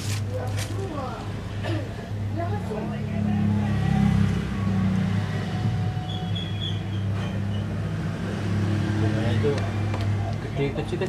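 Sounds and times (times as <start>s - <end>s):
low mechanical hum: 0.0s - 8.1s.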